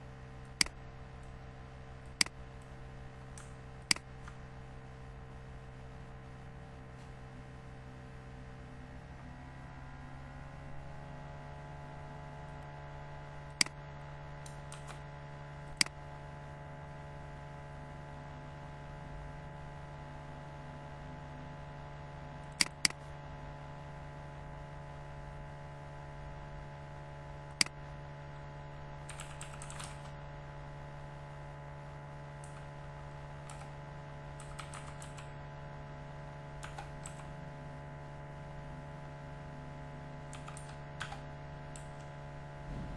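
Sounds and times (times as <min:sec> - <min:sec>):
steady electrical hum: 0:00.0 - 0:42.9
keyboard typing: 0:14.4 - 0:15.0, 0:29.0 - 0:30.2, 0:33.4 - 0:35.4, 0:36.6 - 0:37.4, 0:40.3 - 0:42.1.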